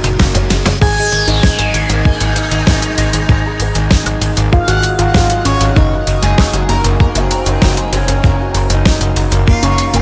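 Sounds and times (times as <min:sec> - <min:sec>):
electronic music: 0:00.0 - 0:10.0
sustained synth notes: 0:00.8 - 0:05.1.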